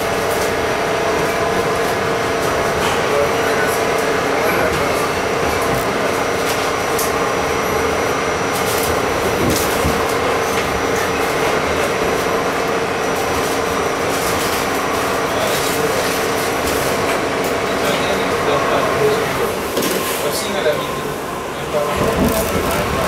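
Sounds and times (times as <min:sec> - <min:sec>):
subway wheels rumbling on rail: 0:00.0 - 0:23.0.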